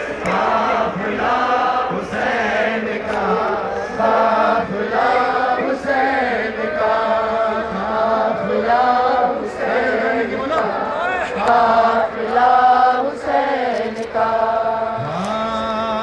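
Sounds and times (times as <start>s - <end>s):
man chanting a lament: 15.0s - 16.0s.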